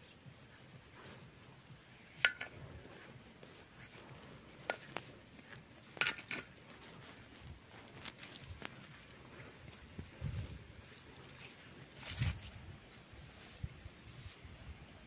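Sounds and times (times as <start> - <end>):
paintbrush brushing on metal: 0.1 - 14.4
brush tapping metal: 0.6 - 9.1.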